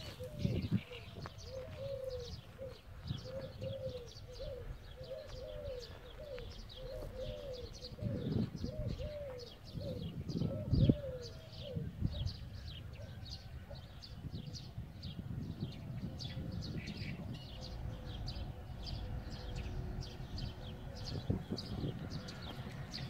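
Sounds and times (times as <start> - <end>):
dove cooing: 0.0 - 23.0
songbirds chirping: 0.0 - 23.0
low rumbles: 14.8 - 23.0.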